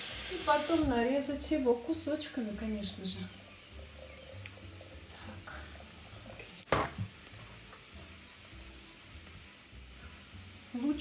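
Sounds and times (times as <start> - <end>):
faint steady hiss: 0.0 - 11.0
hard object knocking on worktop: 6.7 - 7.2.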